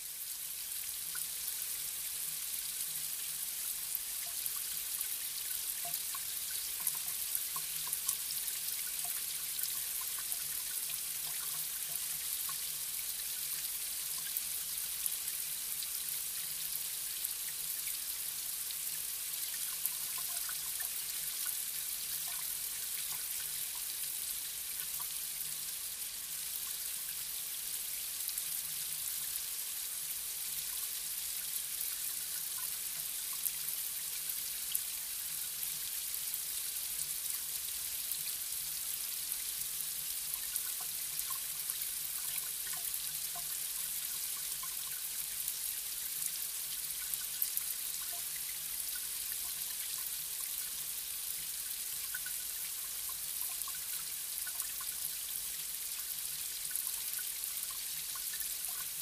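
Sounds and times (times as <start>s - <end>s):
water drips and splashes: 0.1s - 59.0s.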